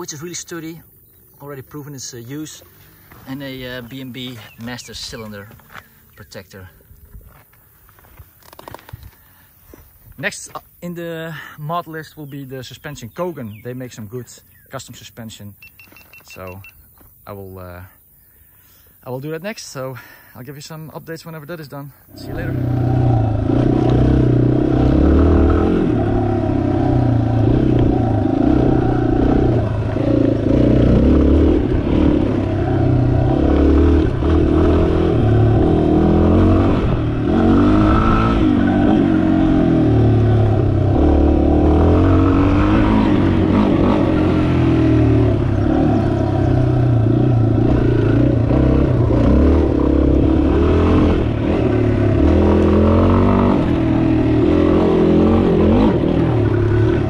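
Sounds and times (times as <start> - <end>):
motorcycle engine revving: 22.1 - 57.0.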